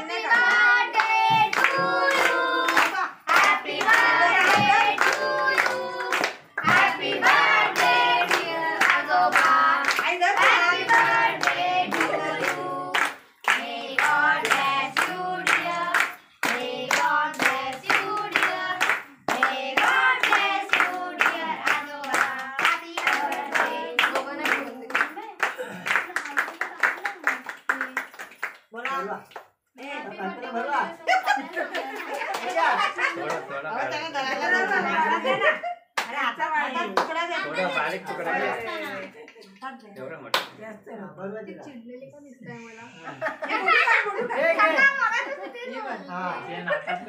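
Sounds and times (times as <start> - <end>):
group singing in unison: 0.0 - 25.0
hands clapping to a beat: 0.3 - 29.6, 36.0 - 36.2, 38.9 - 40.6.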